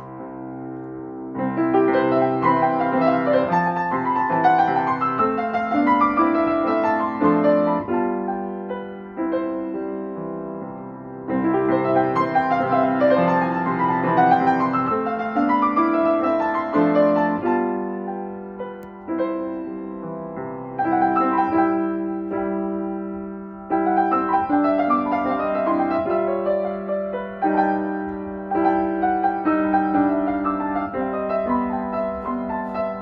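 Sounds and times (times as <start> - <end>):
grand piano playing chords: 0.0 - 33.0.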